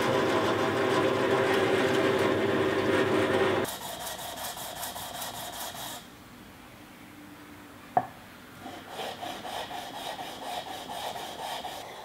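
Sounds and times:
wood rubbed on sandpaper: 3.6s - 6.0s, 8.6s - 12.0s.

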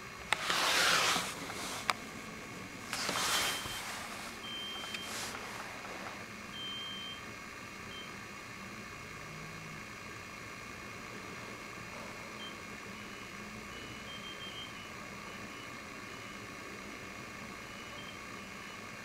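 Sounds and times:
brief rustle: 2.9s - 6.2s
gas pump beeps: 3.2s - 5.2s, 6.5s - 7.2s, 7.9s - 8.1s, 12.4s - 16.4s, 17.7s - 18.8s.

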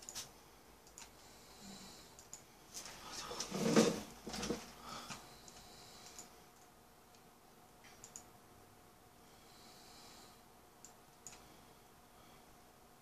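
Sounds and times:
computer mouse clicking: 0.0s - 1.2s, 2.1s - 2.4s, 5.4s - 8.3s, 10.8s - 11.5s
faint steady hum: 0.0s - 13.0s.

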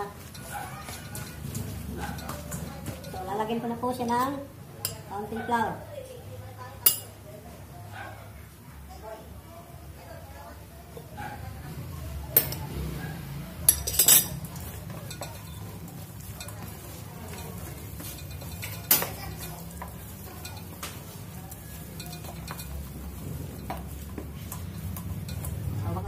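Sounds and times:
hands rubbing and squishing meat: 0.0s - 3.2s, 14.4s - 26.0s
metallic clinks against bowl: 13.6s - 23.9s.

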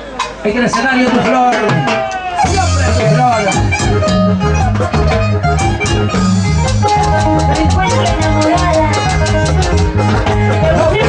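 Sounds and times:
band playing latin dance music: 0.0s - 11.0s.

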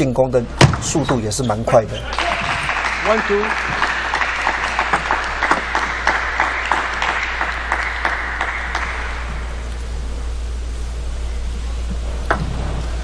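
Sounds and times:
crowd applauding: 1.9s - 9.6s.

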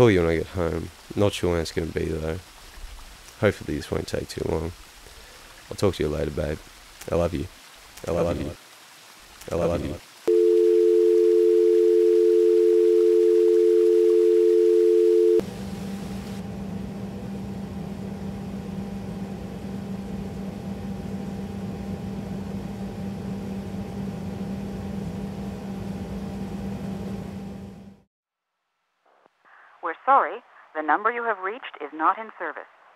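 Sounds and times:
low hum with faint hiss: 0.0s - 8.6s, 9.4s - 27.5s
telephone dial tone: 10.3s - 15.4s.

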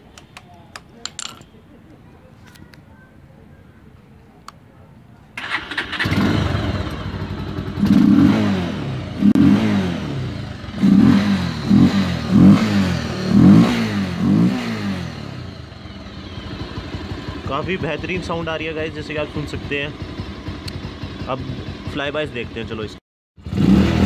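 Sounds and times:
motorcycle engine revving: 5.4s - 24.0s.

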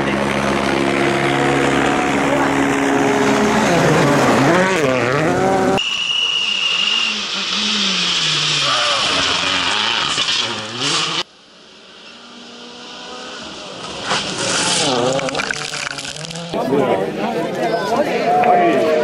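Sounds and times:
rally car engine revving: 0.0s - 17.2s
distant car approaching: 0.0s - 17.5s
gravel hissing under tyres: 5.9s - 11.3s, 12.0s - 16.6s.

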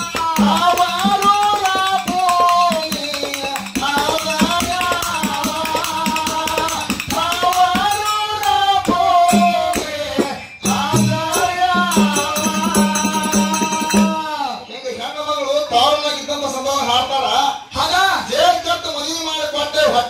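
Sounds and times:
hand drum: 0.0s - 14.2s
hand cymbals struck: 0.0s - 14.4s
man singing: 0.0s - 16.0s.

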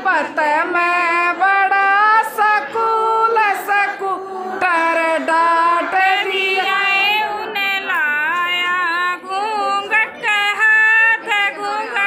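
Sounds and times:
women singing folk song: 0.0s - 12.0s.

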